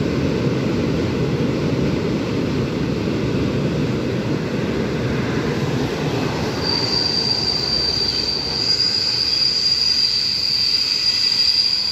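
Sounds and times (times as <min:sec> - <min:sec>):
train rolling across steel bridge: 0:00.0 - 0:11.9
high-pitched wheel squeal: 0:06.5 - 0:11.9.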